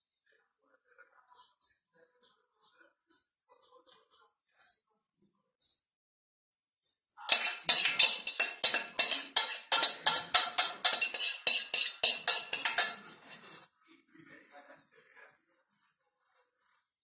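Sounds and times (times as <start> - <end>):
metal spoon scraping saucepan: 7.3 - 13.7.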